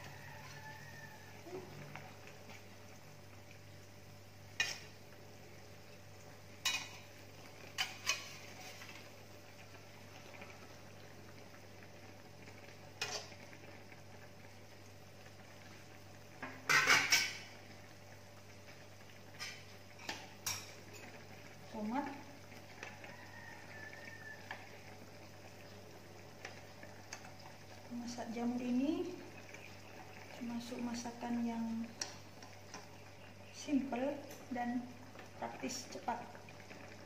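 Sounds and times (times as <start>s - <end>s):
metal utensils clinking on steel: 6.6s - 7.0s.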